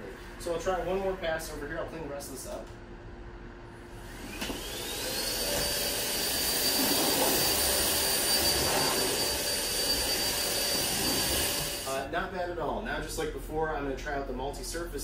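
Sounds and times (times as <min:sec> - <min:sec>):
vacuum cleaner motor whining: 0:04.0 - 0:11.9
vacuum suction rushing: 0:04.1 - 0:11.9.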